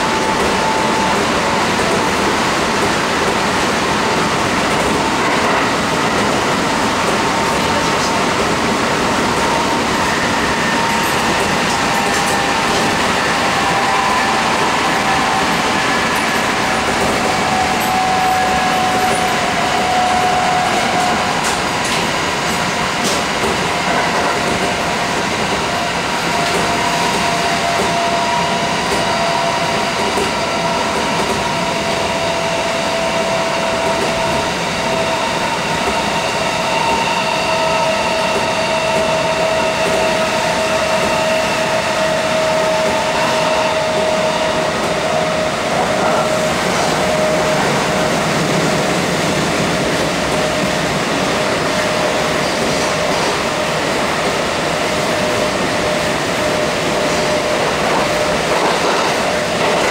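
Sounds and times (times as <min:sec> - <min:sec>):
train rumbling on rails: 0:00.0 - 0:59.9.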